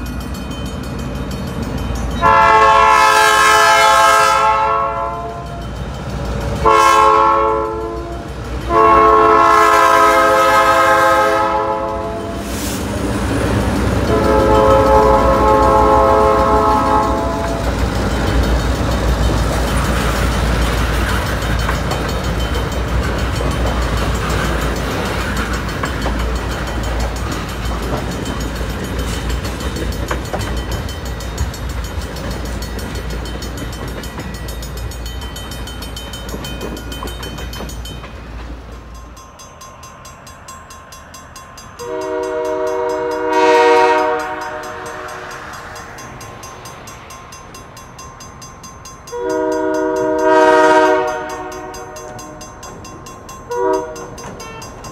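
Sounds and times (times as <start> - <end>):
freight train rumbling past: 0.0 - 54.9
locomotive horn: 2.2 - 5.6, 6.6 - 12.5, 14.0 - 17.7, 41.8 - 45.4, 49.1 - 52.4, 53.5 - 54.8.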